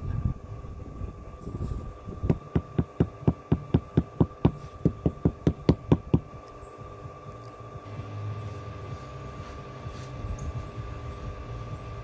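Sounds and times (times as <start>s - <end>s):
rubber mallet knocking stone slab: 2.3s - 6.3s.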